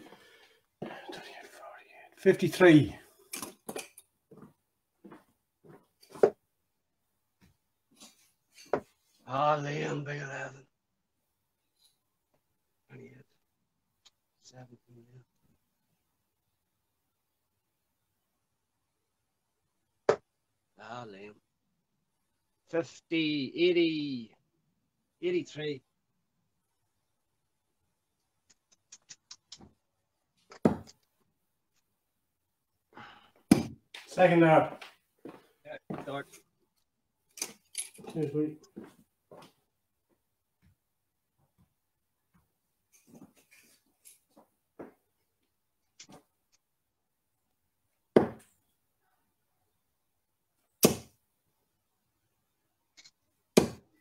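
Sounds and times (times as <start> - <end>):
darts striking a dartboard: 48.2 - 48.5, 50.8 - 51.2.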